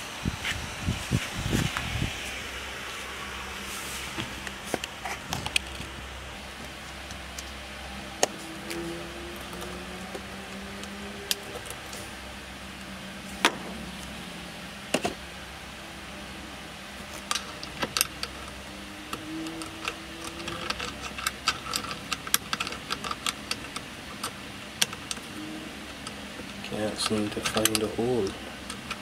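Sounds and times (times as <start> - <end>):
steady low hum: 0.0 - 29.0
clicks of handling connectors: 25.9 - 29.0.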